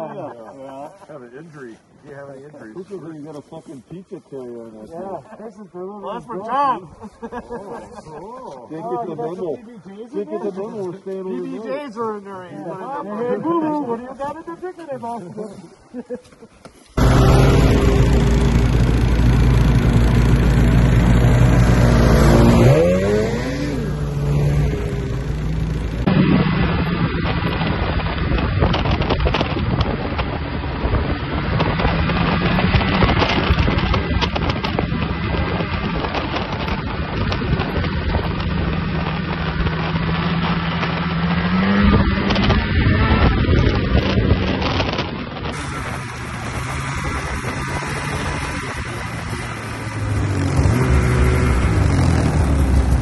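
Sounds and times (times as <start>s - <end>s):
snowmobile engines idling: 0.0s - 53.0s
snowmobile revving: 17.0s - 53.0s.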